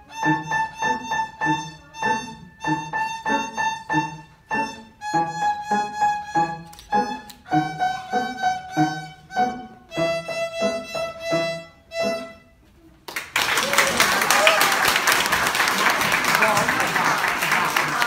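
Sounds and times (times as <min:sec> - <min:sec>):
piano chords: 0:00.0 - 0:12.6
violin melody: 0:00.0 - 0:12.8.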